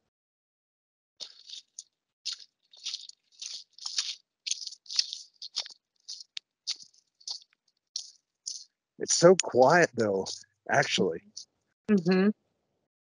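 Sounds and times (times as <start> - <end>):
footsteps crunching on forest floor: 1.2 - 8.7.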